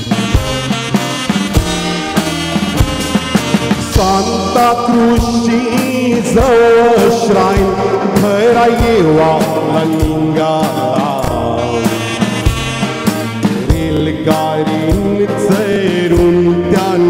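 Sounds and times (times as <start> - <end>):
backing track with drum beat: 0.0 - 17.0
person singing gliding melody: 3.7 - 12.5.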